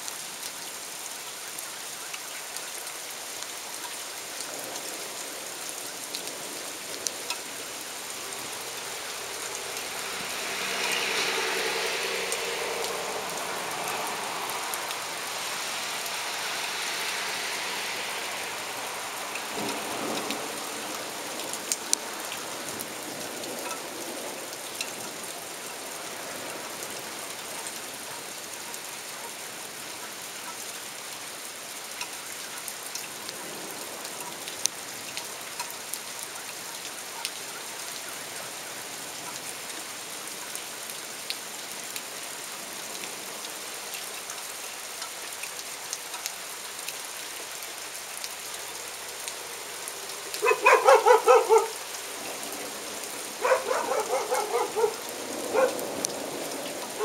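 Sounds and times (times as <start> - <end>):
heavy rain falling: 0.0 - 57.0.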